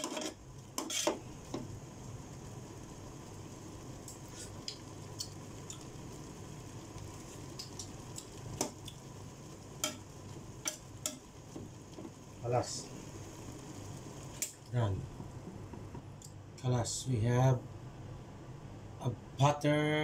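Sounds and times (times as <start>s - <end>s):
faint simmering hiss: 0.0s - 20.0s.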